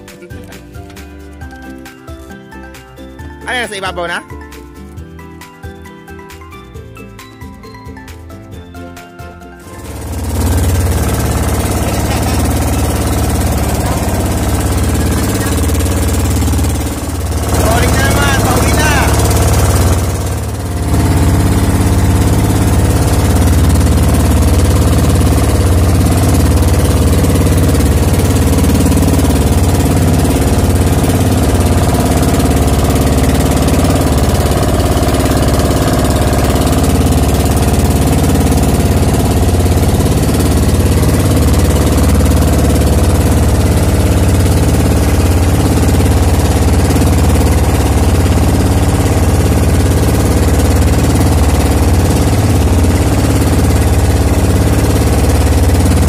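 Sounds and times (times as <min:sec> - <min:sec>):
boat motor droning: 0:09.6 - 0:56.0.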